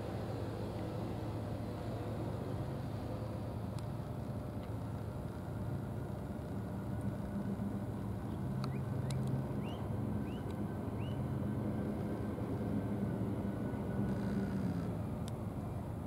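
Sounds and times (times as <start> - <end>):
engine idling hum: 0.0 - 16.0
faint ticks: 8.6 - 9.4.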